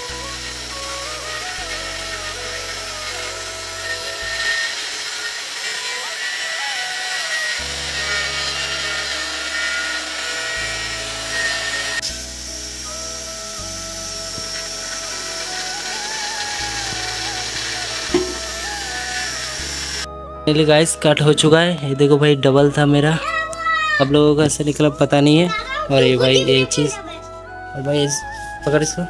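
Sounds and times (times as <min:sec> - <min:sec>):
angle grinder cutting steel: 0:00.0 - 0:20.1
background music: 0:00.0 - 0:29.0.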